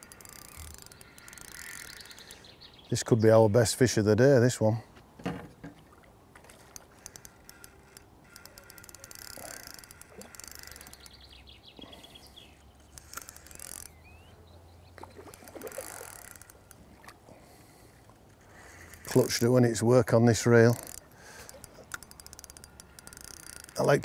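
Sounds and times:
fishing reel drag ticking: 0.0 - 2.5, 6.5 - 11.4, 12.3 - 14.3, 15.2 - 24.0.

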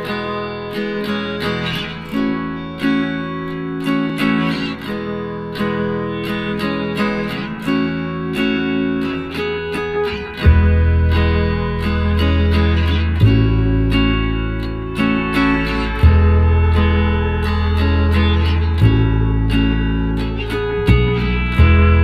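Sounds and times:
acoustic guitar music: 0.0 - 22.0
deep bass: 10.4 - 22.0.

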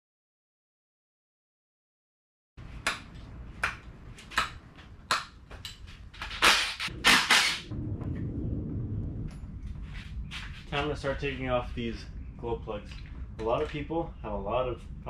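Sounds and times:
low rumble: 6.8 - 15.0.

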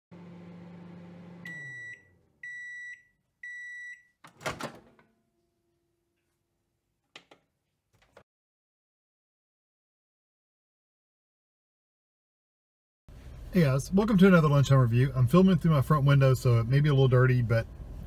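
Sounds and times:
microwave hum: 0.1 - 5.7
microwave beeps: 1.0 - 4.2
microwave door clunk: 4.3 - 5.1.

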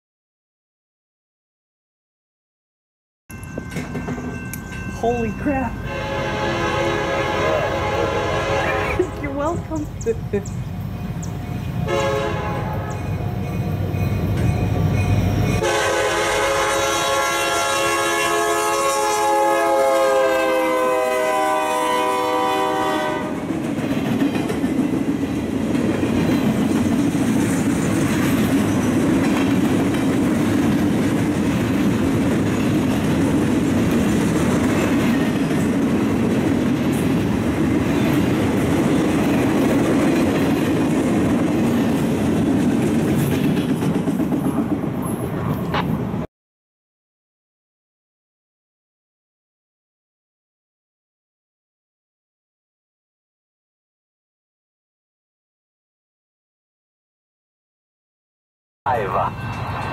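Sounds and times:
train wheels clacking on rails: 3.3 - 4.9, 23.4 - 45.2
locomotive air horn: 5.9 - 9.2, 11.8 - 13.0, 15.6 - 23.4.

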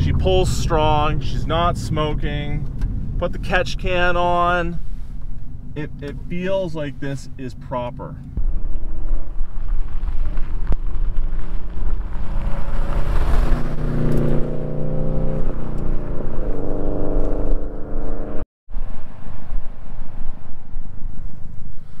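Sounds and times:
steady low rumble: 0.0 - 22.0.

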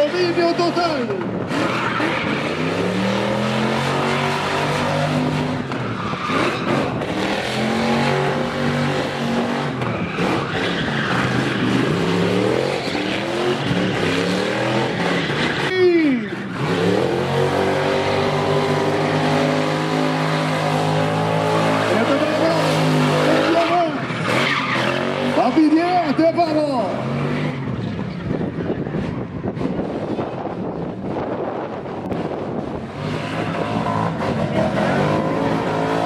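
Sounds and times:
tyres screeching: 0.0 - 29.1
car engine revving hard: 0.4 - 15.7, 16.3 - 27.8, 32.1 - 36.0.

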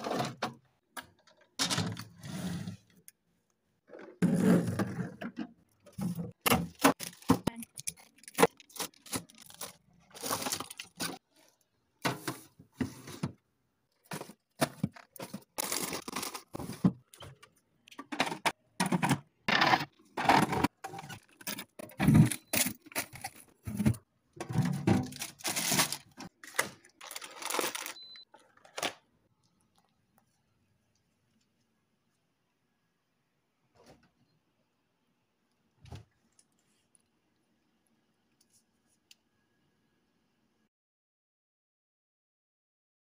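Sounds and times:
packaging crinkling: 6.7 - 11.2, 15.0 - 16.7, 25.0 - 29.0
plastic clattering: 14.0 - 29.0.

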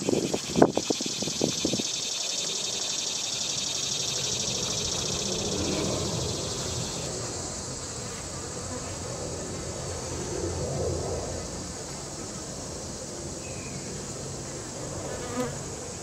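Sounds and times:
high-pitched hiss: 0.0 - 10.1.

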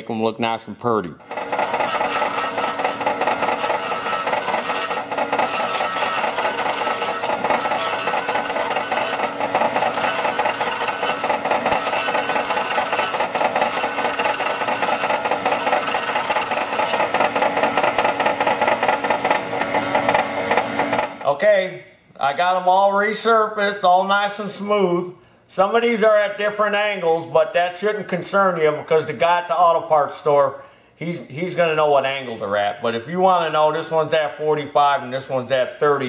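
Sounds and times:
machine motor hum: 1.3 - 21.2.

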